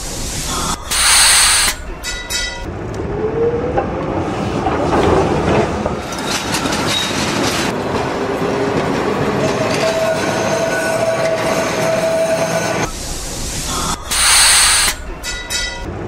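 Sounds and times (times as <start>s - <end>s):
tram motor whine: 0.0s - 16.0s
wheels clattering over track: 2.2s - 10.2s.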